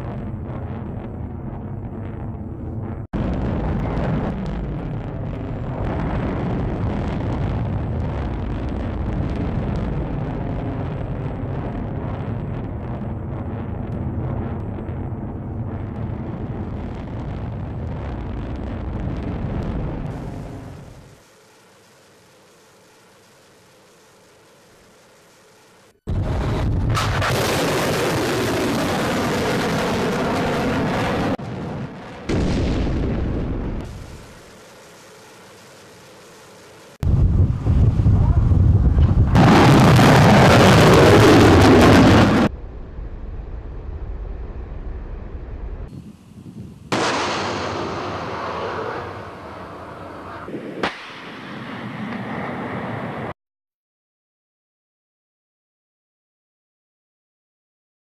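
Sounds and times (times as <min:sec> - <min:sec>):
low steady rush: 0:20.1 - 0:26.6, 0:33.8 - 0:39.4
missile launch roar: 0:26.1 - 0:34.5, 0:37.0 - 0:46.0, 0:46.9 - 0:53.3
sharp crack: 0:26.7 - 0:29.7, 0:46.9 - 0:52.5.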